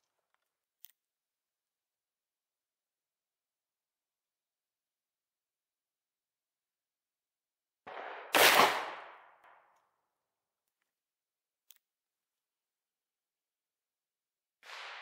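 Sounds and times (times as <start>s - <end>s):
revolver gunshot: 7.9s - 9.2s.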